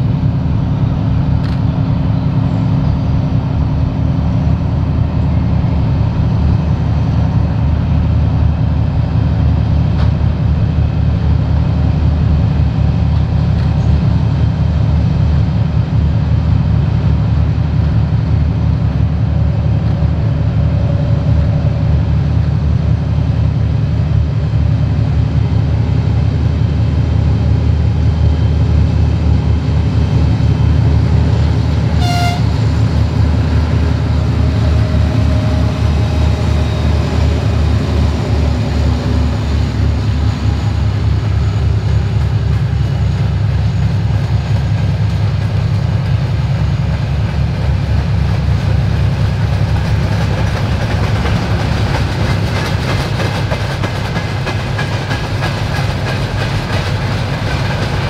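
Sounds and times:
diesel locomotive engine drone: 0.0 - 58.0
locomotive horn toot: 31.9 - 32.8
train wheels rhythmic beat: 33.8 - 58.0.

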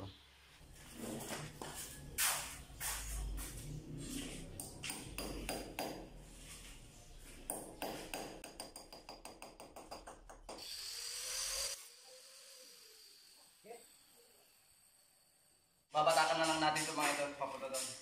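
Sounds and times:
hammer tapping on concrete: 4.6 - 6.1, 7.4 - 10.6.

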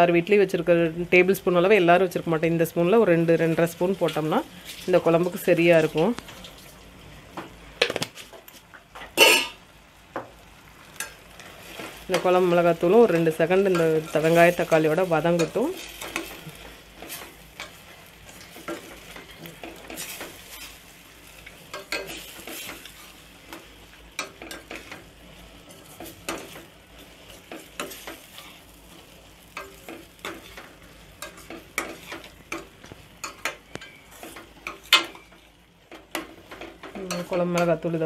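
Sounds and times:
light sizzle of frying: 0.0 - 38.0
metal spoon scraping a pan: 9.2 - 9.6, 13.1 - 37.8.

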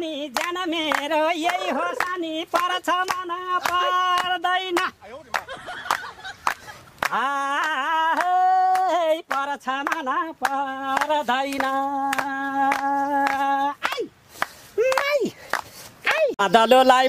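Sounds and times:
person singing wordless tune: 0.0 - 5.0, 7.0 - 14.2, 16.0 - 17.0.

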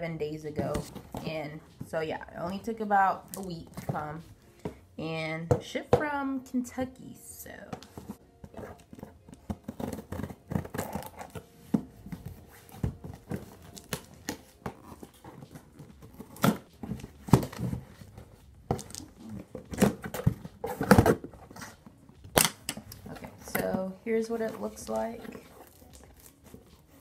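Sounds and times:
scissors slicing packing tape: 9.4 - 11.4.

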